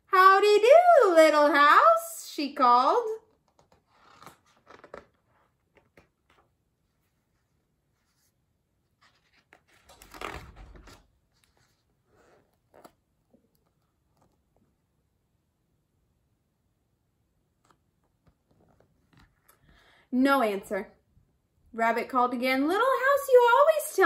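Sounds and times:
book pages rustling: 0:03.3 - 0:14.9, 0:17.5 - 0:19.8.

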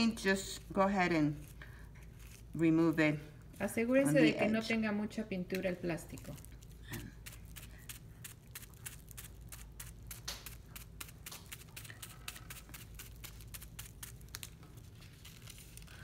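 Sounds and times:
soft taps of bubble wrap on paper: 0:10.0 - 0:16.0.

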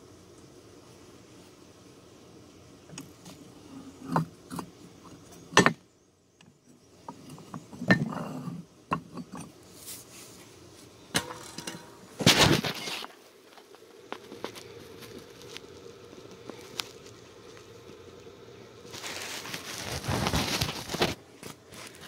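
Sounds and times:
metal scraping on concrete: 0:07.1 - 0:10.0, 0:11.2 - 0:13.2.

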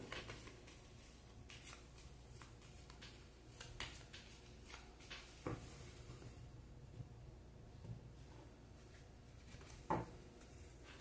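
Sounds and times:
cards being shuffled: 0:00.0 - 0:05.6.

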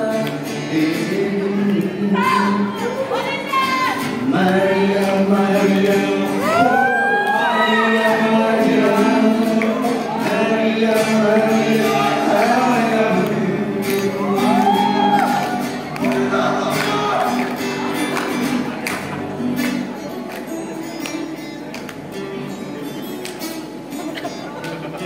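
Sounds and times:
man singing into microphone: 0:00.0 - 0:03.1, 0:04.0 - 0:17.5
acoustic guitar: 0:00.0 - 0:25.0.

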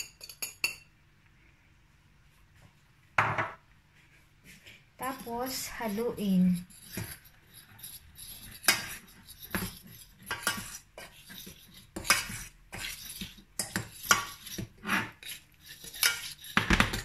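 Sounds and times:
utensil scraping a saucepan: 0:05.0 - 0:17.0.

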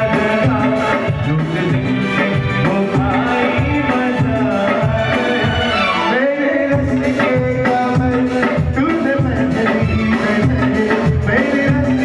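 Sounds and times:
keyboard: 0:00.0 - 0:12.0
man singing into a microphone: 0:00.0 - 0:12.0
hand drums: 0:06.8 - 0:12.0.

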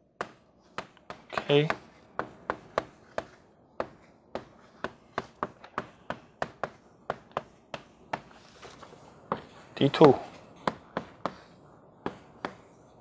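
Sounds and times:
chalk tapping on blackboard: 0:00.2 - 0:08.5, 0:09.3 - 0:12.8.

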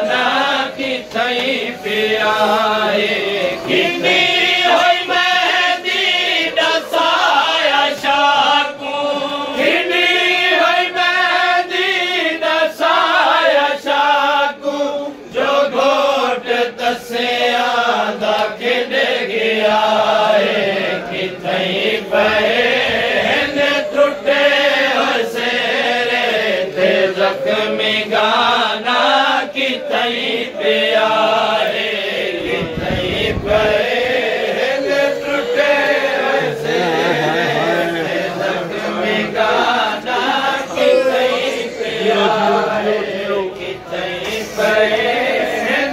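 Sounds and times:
crowd of men chanting lament: 0:00.0 - 0:45.9.

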